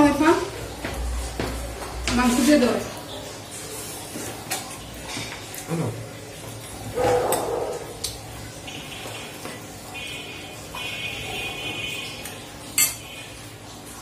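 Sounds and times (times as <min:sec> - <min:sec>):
metal spoon clinking in ceramic bowl: 0:12.8 - 0:13.0.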